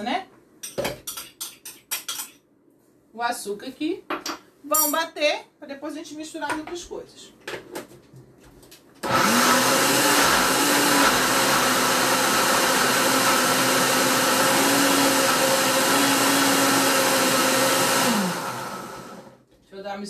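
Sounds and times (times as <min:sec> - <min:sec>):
blender motor running: 0:09.0 - 0:19.4.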